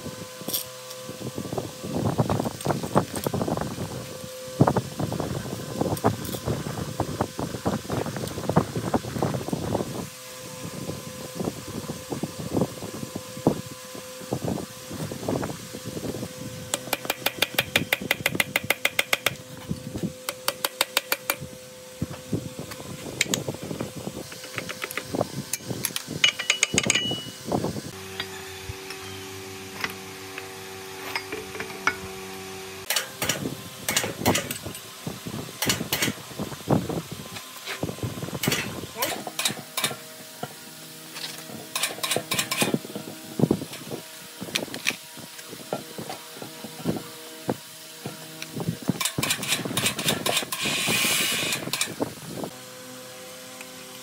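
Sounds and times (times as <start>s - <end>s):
steady hum: 0.0s - 54.0s
fast run of tool clicks: 16.7s - 19.4s, 41.7s - 42.8s, 49.0s - 52.0s
taps and knocks on metal: 16.8s - 19.4s, 26.2s - 27.3s.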